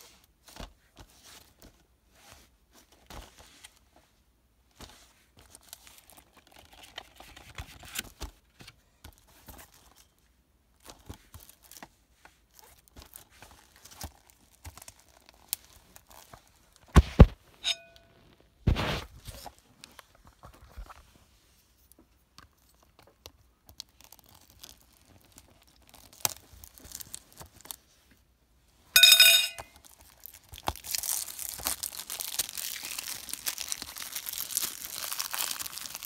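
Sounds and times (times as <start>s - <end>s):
plastic wrap tearing and crinkling: 12.5s - 17.4s, 23.8s - 27.8s, 29.8s - 36.0s.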